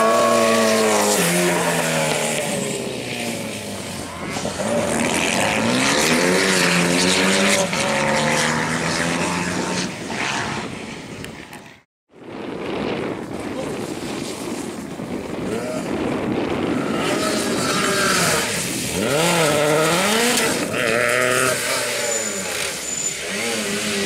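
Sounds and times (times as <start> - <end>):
rally car engine accelerating: 0.0 - 10.7, 16.6 - 24.0.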